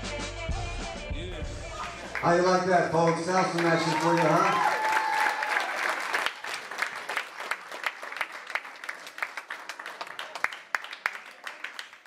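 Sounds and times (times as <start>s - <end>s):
small audience applauding: 1.8s - 12.0s.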